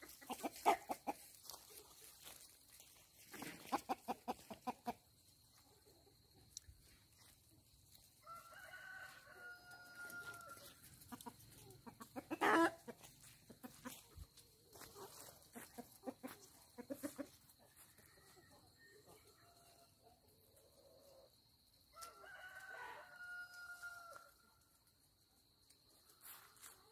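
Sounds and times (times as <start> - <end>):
chickens clucking: 0.0 - 8.1, 9.8 - 21.4
rooster crowing: 8.2 - 10.7, 21.9 - 24.4.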